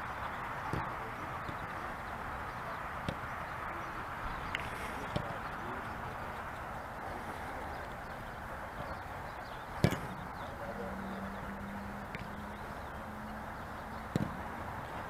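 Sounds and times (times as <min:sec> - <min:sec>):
open-air background noise: 0:00.0 - 0:15.0
football being kicked: 0:09.8 - 0:10.3, 0:14.1 - 0:14.4.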